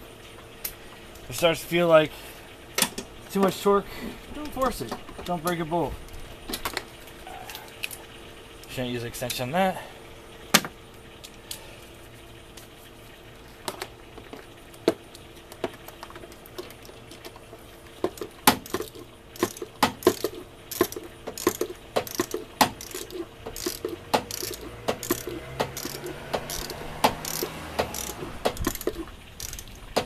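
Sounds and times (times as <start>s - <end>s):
metal tools clinking: 18.1s - 29.9s
socket ratchet clicking: 18.1s - 30.0s.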